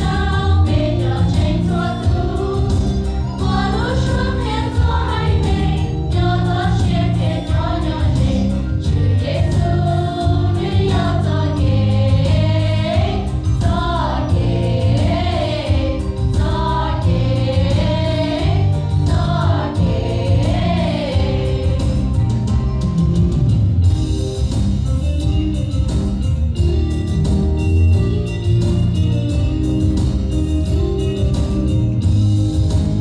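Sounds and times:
women's choir singing gospel: 0:00.0 - 0:22.3
instrumental accompaniment with bass: 0:00.0 - 0:33.0.

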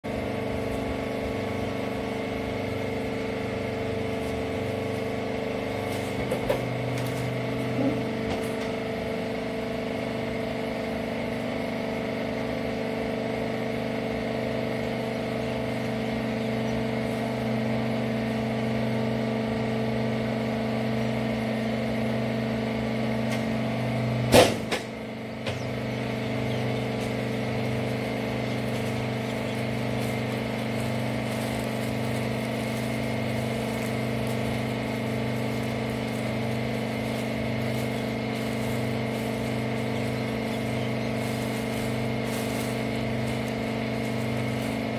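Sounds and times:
hydraulic power unit humming: 0:00.0 - 0:44.9
sharp loud clunk: 0:24.3 - 0:24.9.

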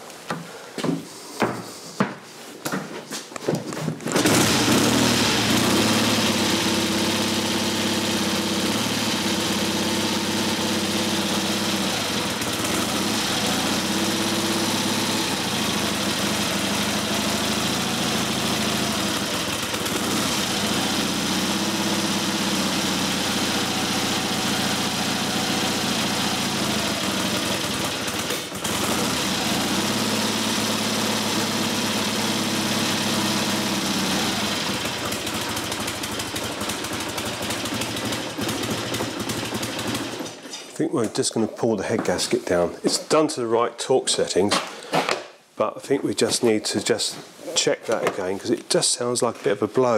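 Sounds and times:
motorcycle engine fast idle: 0:04.2 - 0:40.4.

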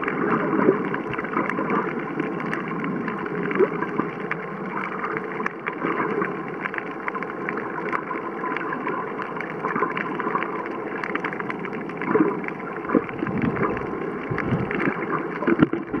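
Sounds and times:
muffled underwater wash: 0:00.0 - 0:16.0
sharp underwater clicks: 0:00.0 - 0:16.0
low uneven rumbling: 0:11.2 - 0:16.0.

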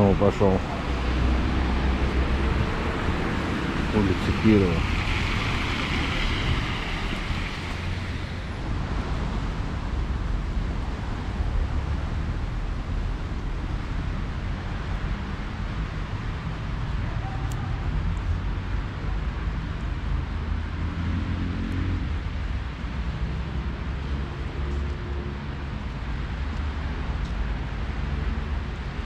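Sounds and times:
wind rumble on microphone: 0:00.6 - 0:29.0
car tyres hissing on wet road: 0:00.8 - 0:10.3.

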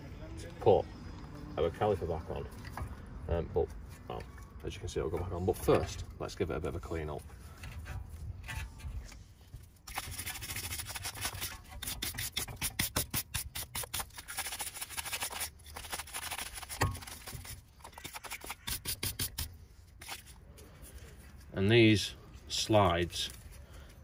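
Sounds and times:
stiff brush scrubbing metal: 0:07.8 - 0:20.4.

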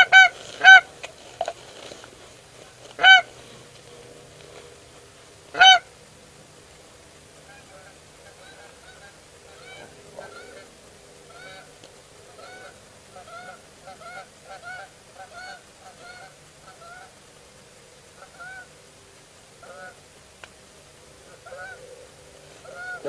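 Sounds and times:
geese honking: 0:00.0 - 0:01.6, 0:02.9 - 0:03.6, 0:05.5 - 0:05.9, 0:07.4 - 0:17.2, 0:18.2 - 0:18.7, 0:19.6 - 0:20.0, 0:21.2 - 0:23.0.

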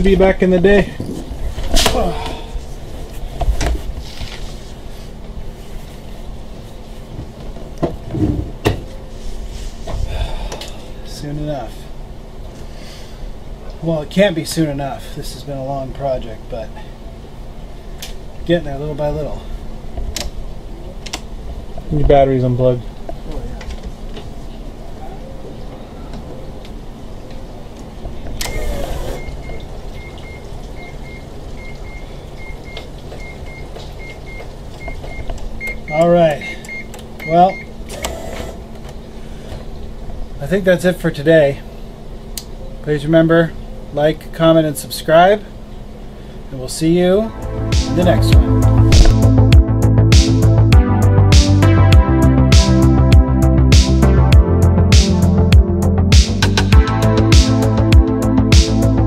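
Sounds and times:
short rustle: 0:02.6 - 0:07.1
electronic warning chime beeping: 0:29.2 - 0:37.7
brief rush of noise: 0:47.3 - 0:49.6.

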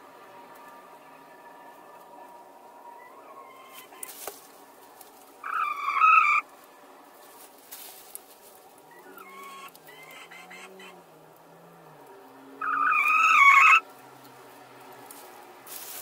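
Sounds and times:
hens calling softly: 0:00.5 - 0:11.2, 0:11.8 - 0:16.0
straw rustling: 0:03.4 - 0:10.0, 0:13.9 - 0:16.0
hen squawking: 0:05.4 - 0:06.5, 0:08.9 - 0:11.0, 0:12.6 - 0:13.8.

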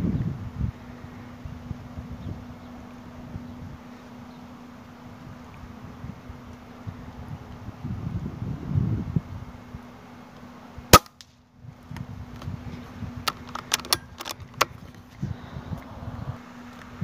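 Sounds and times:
air rifle shot crack: 0:10.9 - 0:11.3.

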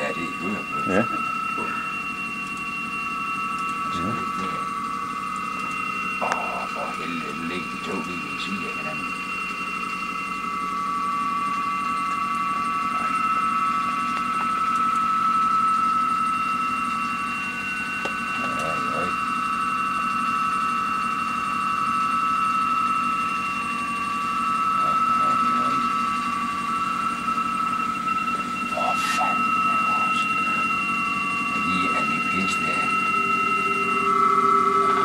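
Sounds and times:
steady radio tones: 0:00.0 - 0:02.5, 0:03.6 - 0:09.4, 0:12.4 - 0:14.7, 0:18.0 - 0:19.3, 0:24.6 - 0:35.0
low hum: 0:00.0 - 0:35.0.

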